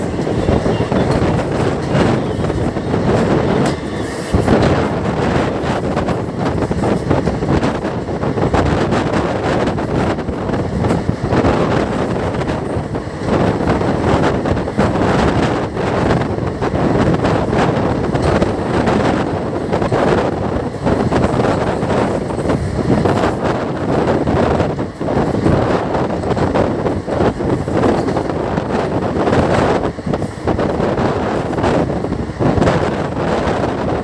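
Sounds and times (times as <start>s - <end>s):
train wheels rumbling on rail: 0.0s - 34.0s
wind buffeting microphone: 0.0s - 34.0s.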